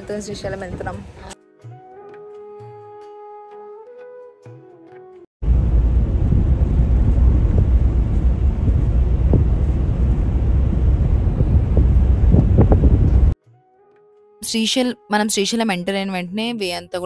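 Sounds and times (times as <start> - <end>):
vehicle road noise: 5.4 - 13.4
wind rumble on microphone: 5.4 - 13.4.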